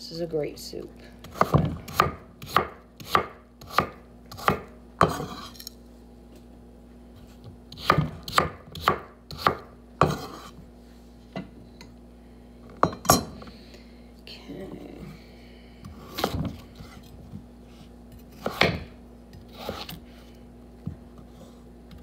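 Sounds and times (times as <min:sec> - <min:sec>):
knife chopping on wooden board: 0:01.2 - 0:05.5, 0:07.7 - 0:10.6, 0:18.4 - 0:20.0.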